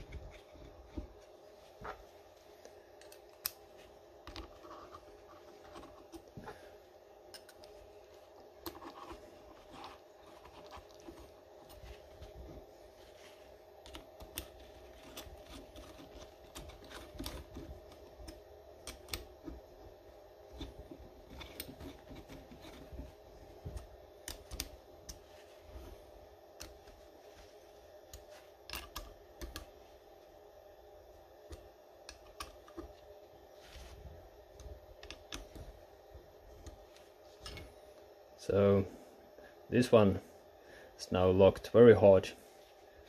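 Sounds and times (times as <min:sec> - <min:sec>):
steady hum: 0:00.0 - 0:43.0.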